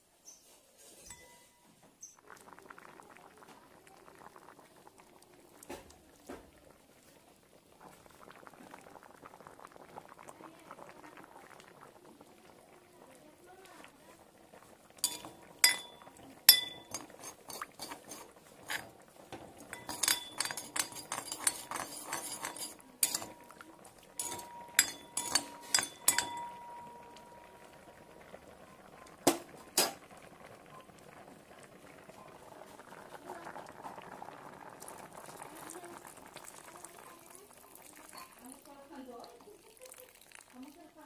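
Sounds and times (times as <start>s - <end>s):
faint liquid sound: 0.2s - 41.0s
spoon clinking on metal plate: 1.0s - 1.6s, 15.0s - 18.9s, 19.7s - 23.6s, 24.2s - 27.4s.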